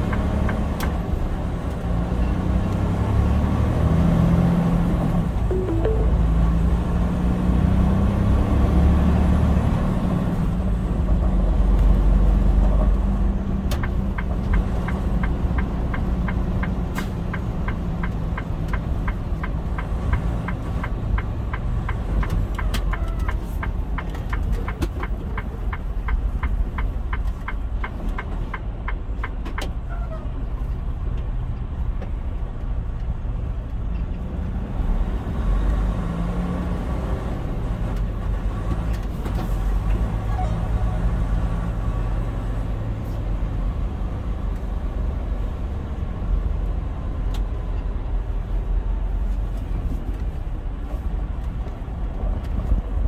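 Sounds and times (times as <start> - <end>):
turn signal ticking: 0.0 - 1.8, 12.8 - 29.9
engine and road rumble: 0.0 - 53.0.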